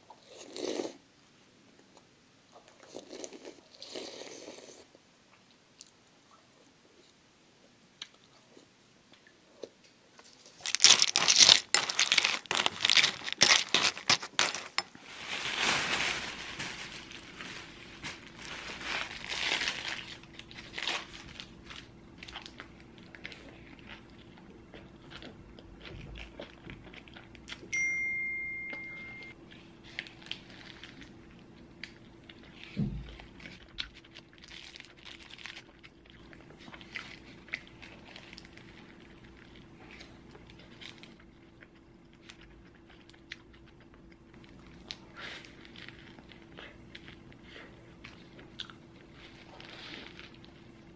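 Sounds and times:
paper wrapper crinkling: 10.2s - 22.6s, 33.4s - 35.9s
short steady beep: 27.7s - 29.4s.

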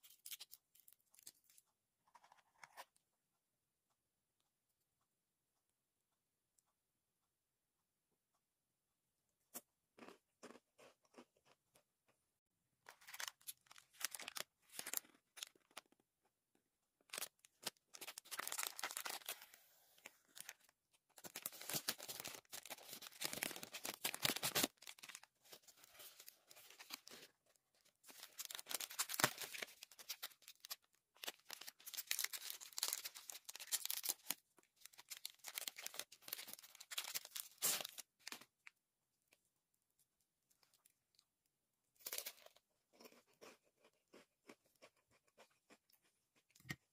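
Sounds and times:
snack wrappers tearing and crinkling: 12.9s - 16.1s, 17.0s - 38.8s, 42.0s - 43.9s.

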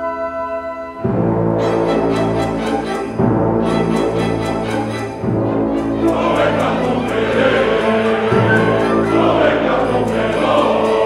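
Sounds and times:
orchestra playing dance passage: 0.0s - 11.0s.

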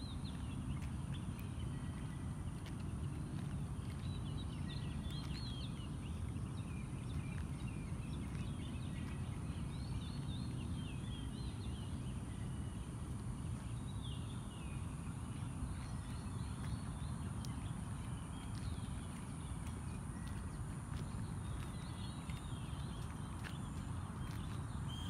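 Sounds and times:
birds chirping: 13.7s - 25.0s.

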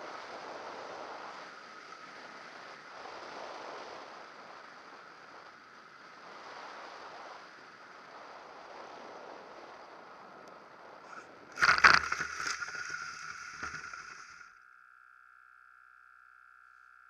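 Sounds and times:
wind rushing past camera: 0.0s - 14.4s.

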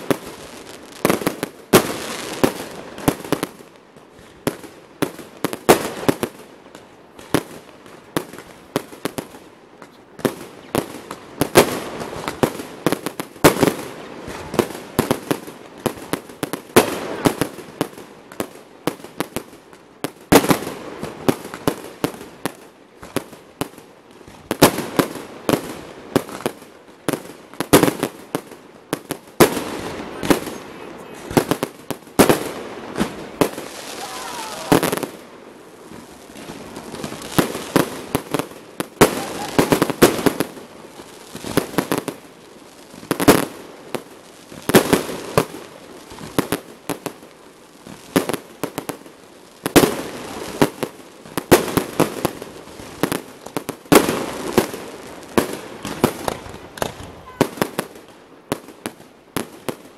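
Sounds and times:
fireworks bursting: 0.0s - 59.9s.

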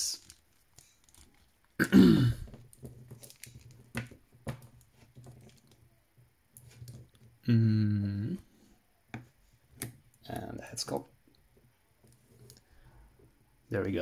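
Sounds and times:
short vocal sound: 7.4s - 8.4s.

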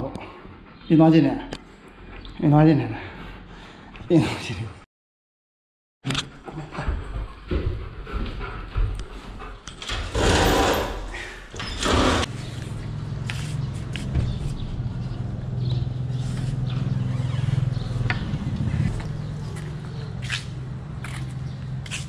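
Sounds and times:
low mechanical drone: 12.2s - 22.0s.

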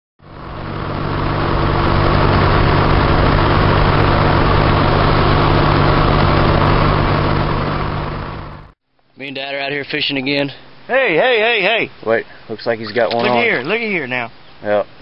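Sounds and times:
low engine drone: 0.2s - 8.8s
road and wind noise: 0.2s - 8.8s.

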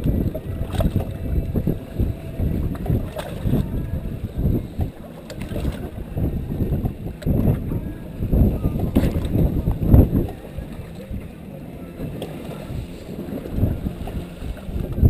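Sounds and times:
water slapping boat hull: 0.0s - 15.0s
wind buffeting microphone: 0.0s - 15.0s.

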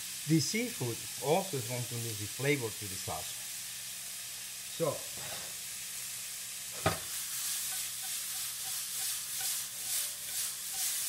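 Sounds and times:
vegetables sizzling in oil: 0.0s - 11.0s
vegetables tossing in pan: 6.7s - 11.0s.

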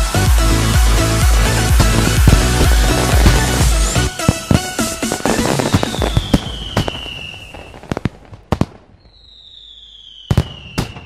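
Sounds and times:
fireworks bangs and crackles: 0.0s - 11.0s
firework falling whistle: 1.2s - 8.0s, 9.0s - 11.0s.

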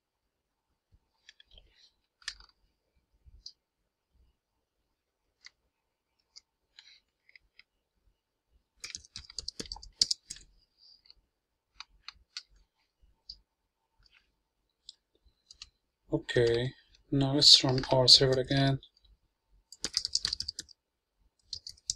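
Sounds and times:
keyboard typing: 8.8s - 10.5s, 14.9s - 15.8s, 17.5s - 18.6s, 19.7s - 20.8s, 21.4s - 21.9s
mouse clicks: 19.7s - 20.8s, 21.4s - 21.9s.

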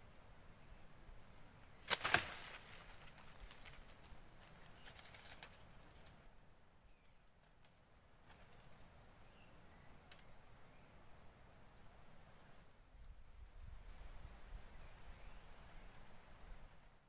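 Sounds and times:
twigs clicking: 1.8s - 6.2s, 10.1s - 10.3s
faint bird chirps: 6.8s - 17.0s
high-pitched insect hum: 7.8s - 17.0s.

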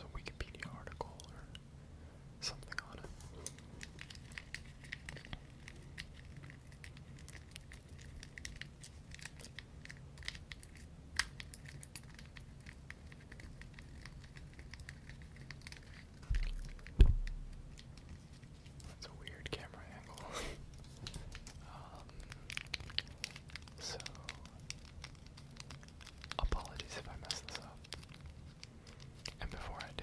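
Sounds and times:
low bump: 16.2s - 17.7s.

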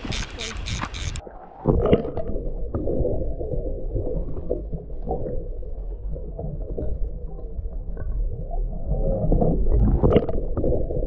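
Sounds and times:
faint ticks: 0.0s - 1.2s
underwater river current gurgling: 0.0s - 11.0s.

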